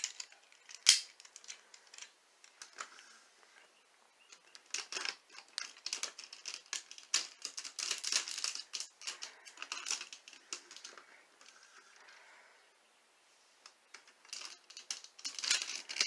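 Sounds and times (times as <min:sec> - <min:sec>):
plastic toy parts clicking: 0:00.0 - 0:03.0, 0:04.3 - 0:11.8, 0:13.6 - 0:16.0.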